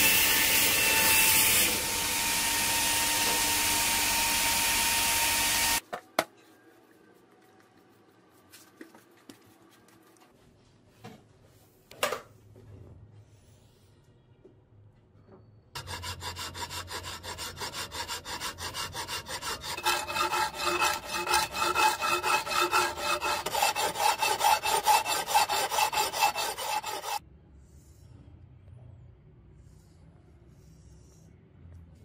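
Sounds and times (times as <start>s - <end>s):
file rasping on steel: 15.8s - 27.2s.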